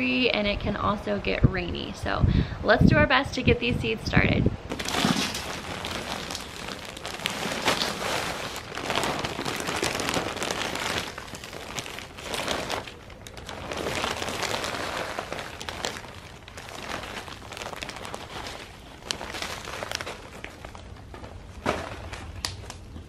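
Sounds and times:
soil pouring into tub: 4.7s - 20.2s
plastic bag crinkling: 4.7s - 23.0s.

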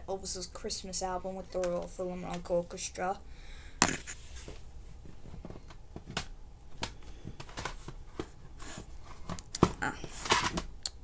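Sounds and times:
plastic cd cases clicking: 5.7s - 8.3s, 9.2s - 10.7s.

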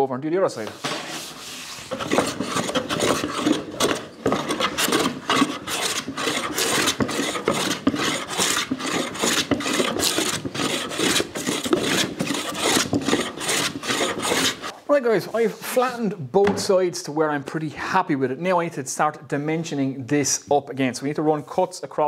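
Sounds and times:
hand plane shaving wood: 0.9s - 14.7s.

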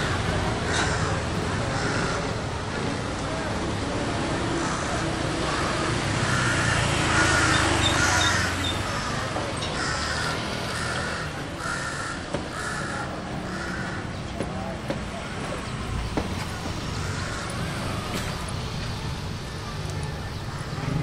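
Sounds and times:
crow cawing: 0.0s - 2.3s, 4.6s - 14.2s, 16.9s - 17.9s
city traffic rumble: 0.0s - 21.0s.

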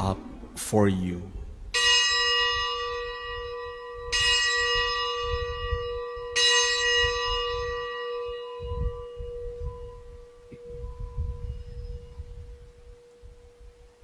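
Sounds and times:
bell ringing: 1.8s - 12.2s.

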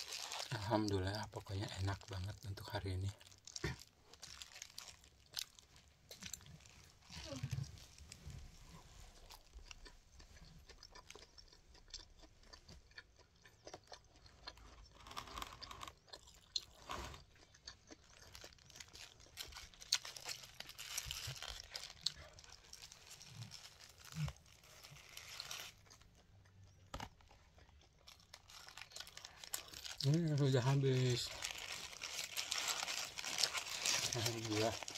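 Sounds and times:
paper wrapper crinkling: 0.0s - 8.4s, 18.2s - 26.1s, 28.0s - 34.9s
person chewing crunchy food: 0.0s - 34.9s.

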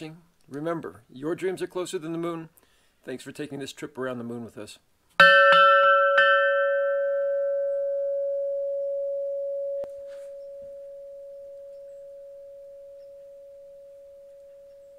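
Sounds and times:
tube chime ringing: 5.2s - 14.9s.

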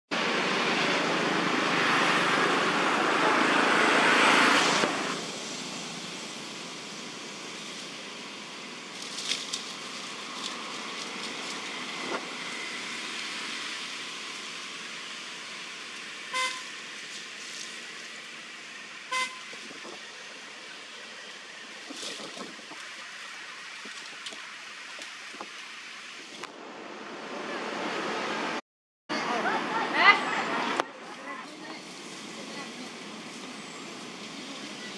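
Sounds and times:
outdoor background noise: 0.1s - 34.9s
vehicle horn beeps: 16.3s - 16.7s, 19.1s - 19.6s.

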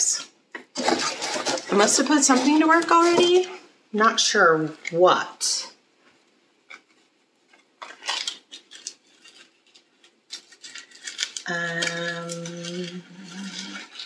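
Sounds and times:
clicks and rustles of packaging: 0.6s - 3.6s, 6.6s - 14.0s
woman humming: 11.5s - 13.9s.

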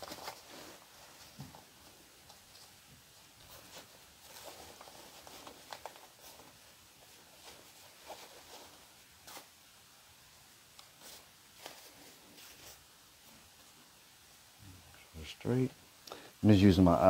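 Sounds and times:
rustling jacket fabric: 0.0s - 9.9s, 10.9s - 13.9s.

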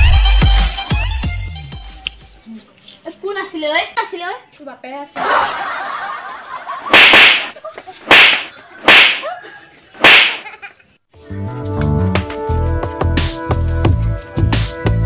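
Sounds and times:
loud whooshing slaps: 6.9s - 9.3s, 10.0s - 10.4s.

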